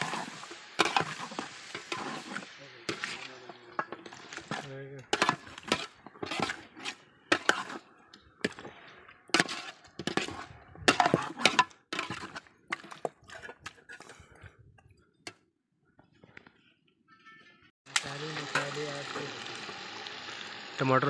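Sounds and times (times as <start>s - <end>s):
metal ladle scraping a metal pot: 0.0s - 14.4s.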